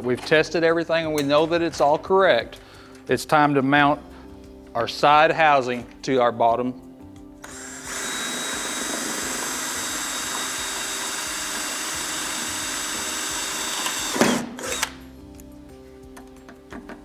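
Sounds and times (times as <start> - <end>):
cordless drill boring through metal: 7.4 - 15.0.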